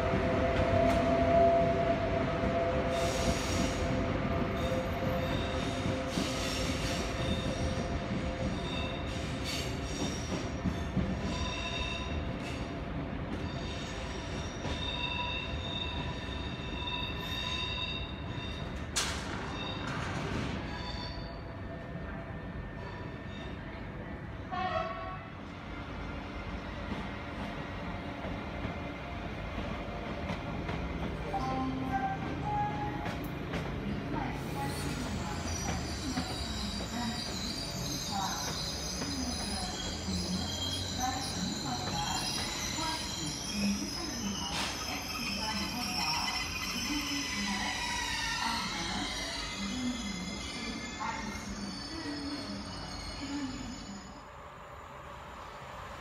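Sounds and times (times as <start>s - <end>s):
train wheels squealing: 0.6s - 24.1s, 34.2s - 54.4s.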